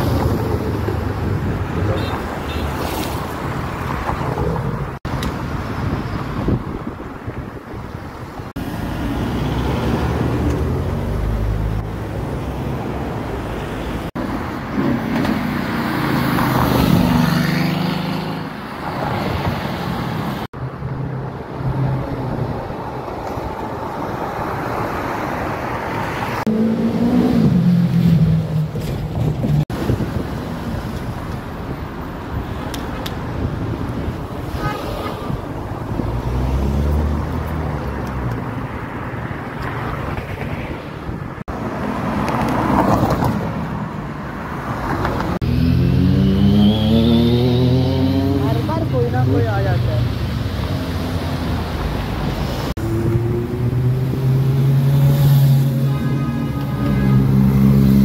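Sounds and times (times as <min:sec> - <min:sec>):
cars driving past: 0:33.4 - 0:58.0.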